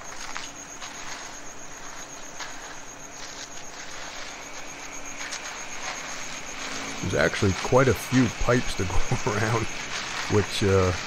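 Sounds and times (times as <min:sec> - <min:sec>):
rake scraping in concrete: 0:00.0 - 0:11.0
small engine running: 0:03.8 - 0:11.0.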